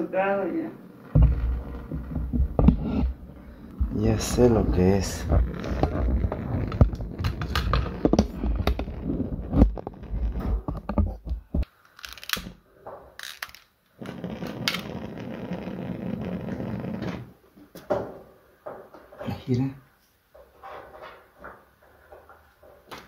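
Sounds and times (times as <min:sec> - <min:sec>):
handling rumble: 0:00.7 - 0:11.6.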